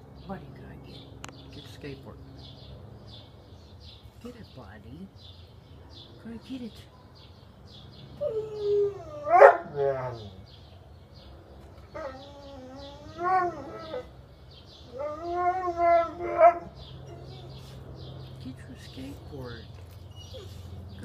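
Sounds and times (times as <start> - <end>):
dog whining howls: 8.2 - 10.4, 11.9 - 14.1, 14.9 - 17.6.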